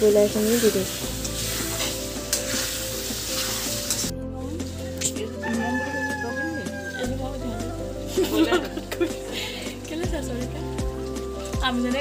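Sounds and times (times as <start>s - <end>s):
curry sizzling in pan: 0.0s - 12.0s
spatula stirring: 0.1s - 4.1s.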